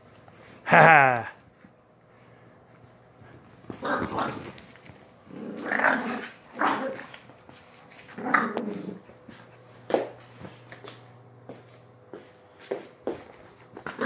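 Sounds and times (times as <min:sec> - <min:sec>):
dogs growling: 0:03.7 - 0:04.6, 0:05.2 - 0:07.2, 0:08.1 - 0:09.4.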